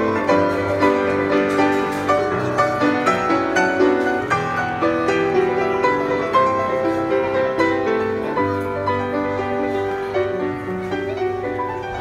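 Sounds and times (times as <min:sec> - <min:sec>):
grand piano playing: 0:00.0 - 0:12.0.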